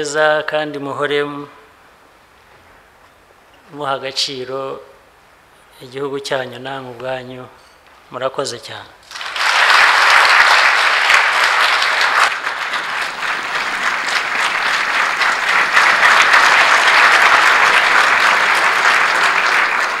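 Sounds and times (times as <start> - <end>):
audience clapping: 9.0 - 20.0.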